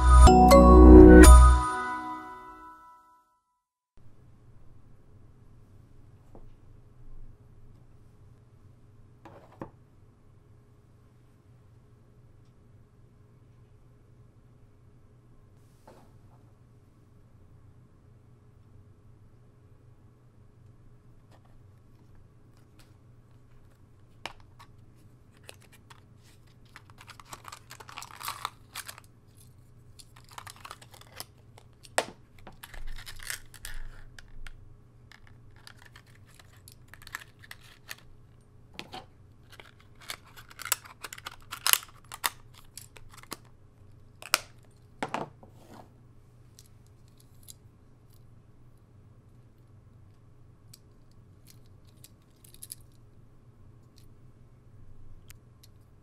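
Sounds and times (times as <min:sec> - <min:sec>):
plastic box rustling and scraping: 0:25.4 - 0:29.0.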